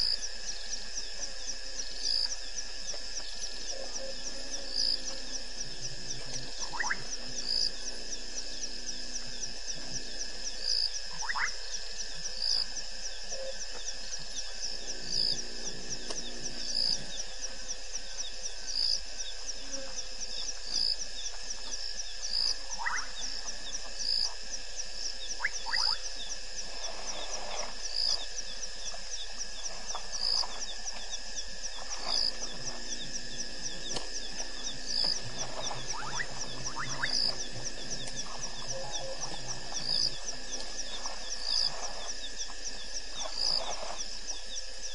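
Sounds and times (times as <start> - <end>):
insects chirring: 0.0 - 44.9
sharp repeating frog call: 6.6 - 7.8, 10.7 - 11.7, 25.4 - 26.1, 33.8 - 41.8.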